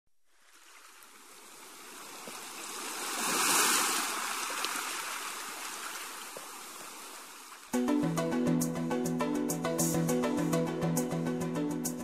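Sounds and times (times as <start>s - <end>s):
sea waves surging: 0.4s - 7.6s.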